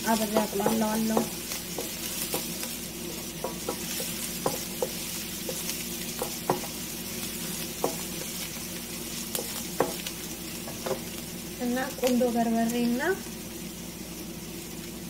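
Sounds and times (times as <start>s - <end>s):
wooden spatula scraping pan: 0.0s - 6.8s
onion sizzling in oil: 0.0s - 15.0s.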